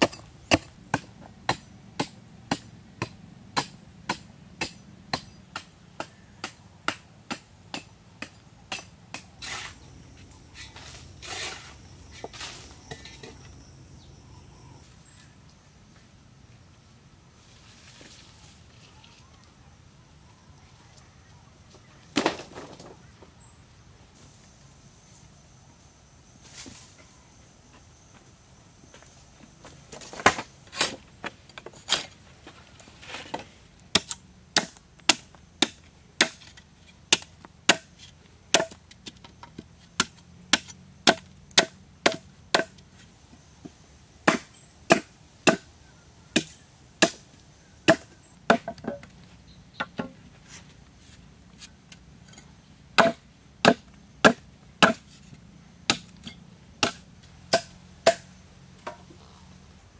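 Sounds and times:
machete chopping wood: 0.0 - 9.7, 33.9 - 37.9, 38.5 - 38.8, 40.0 - 42.8, 44.2 - 45.6, 46.4 - 47.2, 47.9 - 49.0, 53.0 - 55.1, 55.9 - 59.0.

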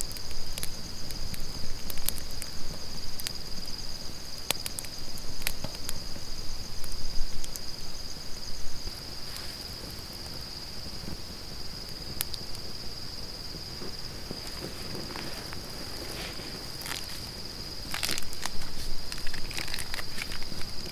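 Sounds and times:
campfire crackling: 0.0 - 20.9
low irregular noise: 0.0 - 20.9
night insects trilling: 0.0 - 20.9.

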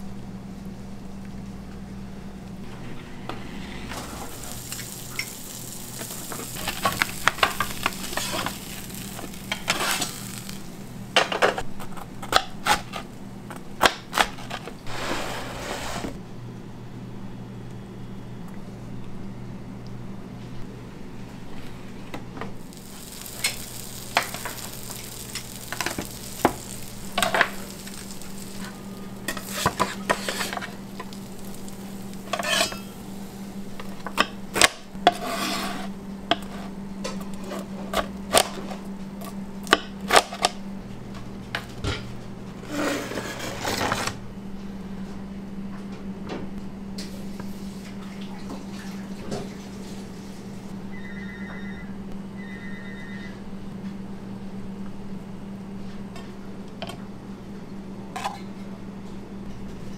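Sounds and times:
kitchen equipment hum: 0.0 - 59.9
metal pans and utensils clattering: 6.0 - 10.5, 11.2 - 11.6, 23.0 - 33.0.

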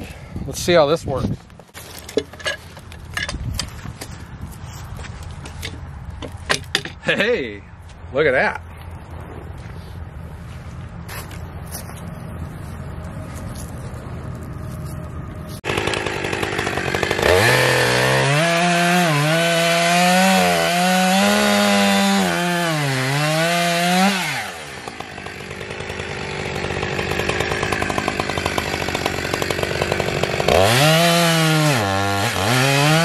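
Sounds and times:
chainsaw cutting through log: 15.5 - 33.0
chainsaw idling and revving: 15.6 - 33.0.

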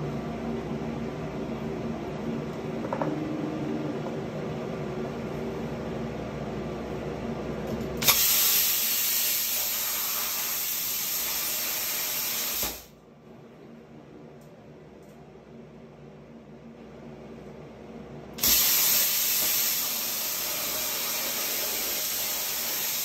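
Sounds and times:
machine hum: 0.0 - 8.1
plasma cutter hissing: 8.0 - 12.9, 18.4 - 23.0.

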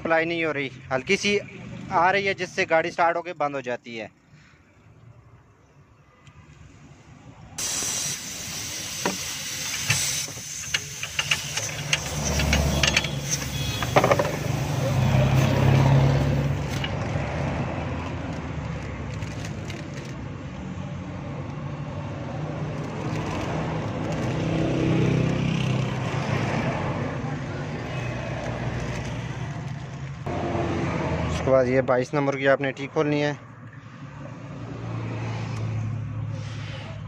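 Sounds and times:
steady gas hiss: 7.6 - 12.3.

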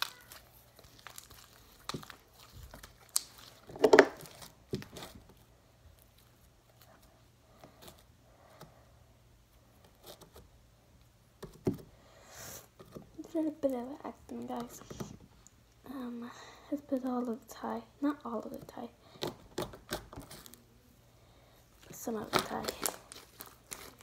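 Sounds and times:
slime squelching and tearing: 0.0 - 5.2, 21.8 - 24.0.

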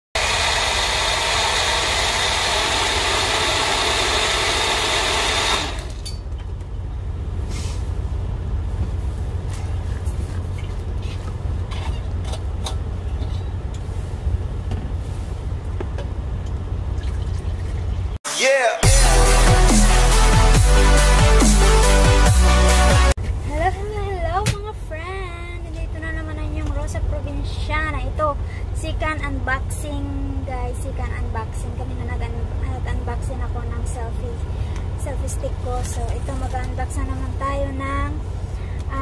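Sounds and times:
blender motor running: 0.2 - 6.0
low steady rumble: 5.8 - 18.2, 23.2 - 39.0.

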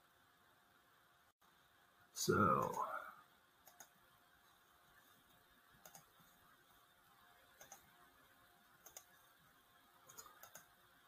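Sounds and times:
faint mouse clicks: 3.6 - 4.0, 5.8 - 6.3, 7.5 - 8.0, 8.8 - 9.2, 10.1 - 10.8.

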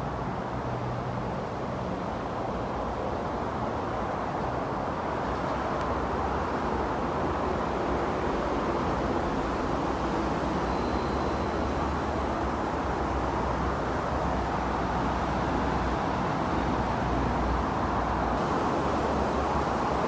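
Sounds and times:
ambient rumble and hiss: 6.0 - 20.0.

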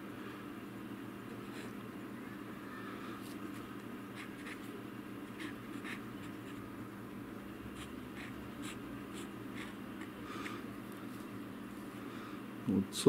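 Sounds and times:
steady low hum: 0.0 - 13.0
fountain pen nib scratching paper: 3.5 - 6.7, 7.7 - 10.2.

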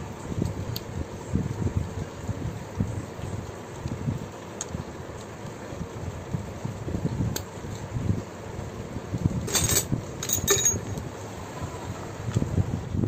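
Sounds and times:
small metal clinks and rattles: 9.4 - 11.0.

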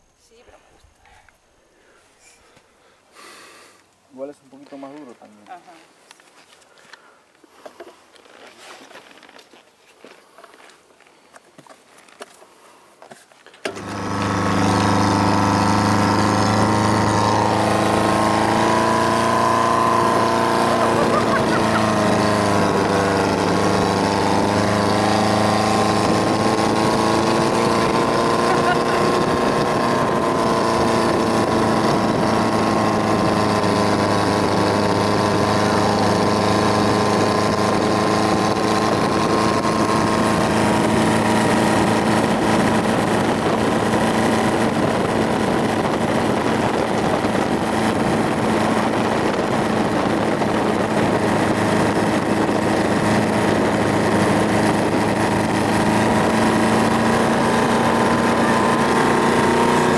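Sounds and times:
engine droning hum: 13.7 - 59.9.

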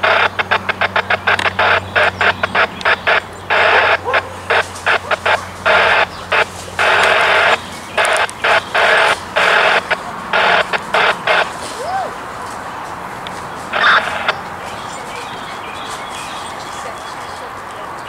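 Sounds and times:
faint low hum: 0.0 - 18.0
radio squelch static bursts: 0.0 - 18.0.

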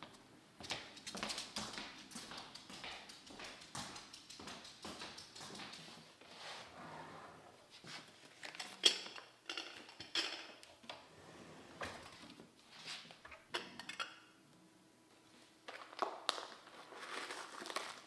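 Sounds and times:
drawer sliding: 6.5 - 7.6, 11.0 - 12.2.

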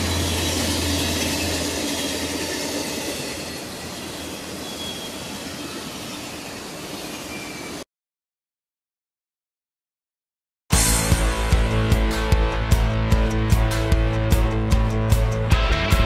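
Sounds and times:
diesel locomotive drone: 0.0 - 7.8, 10.8 - 16.0
train cars rumbling and clattering: 0.0 - 7.8
train wheel squeals: 0.0 - 7.8.

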